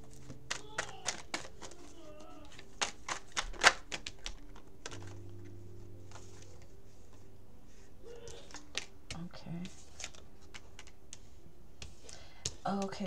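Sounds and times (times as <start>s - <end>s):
cards clicking and snapping: 0.0s - 5.5s, 8.2s - 13.0s.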